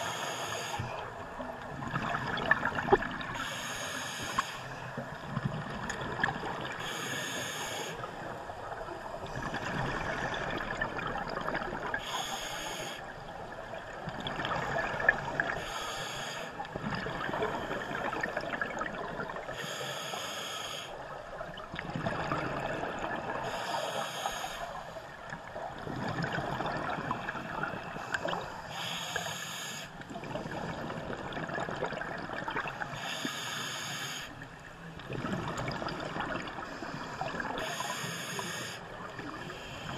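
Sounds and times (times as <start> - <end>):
scuba regulator inhalation hiss: 0.0 - 1.0, 3.4 - 4.8, 6.8 - 8.1, 12.0 - 13.0, 15.6 - 16.6, 19.6 - 21.0, 23.4 - 25.0, 28.0 - 30.0, 32.9 - 34.4, 37.6 - 39.9.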